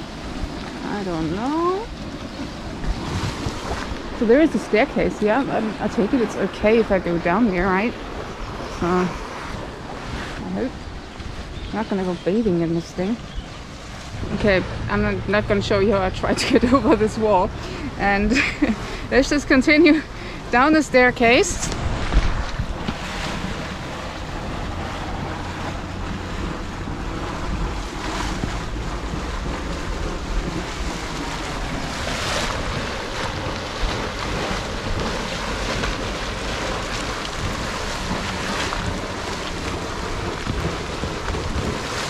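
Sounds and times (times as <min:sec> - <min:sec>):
wind buffeting microphone: 0:00.0 - 0:42.0
hissing steam and boiling water: 0:26.2 - 0:42.0.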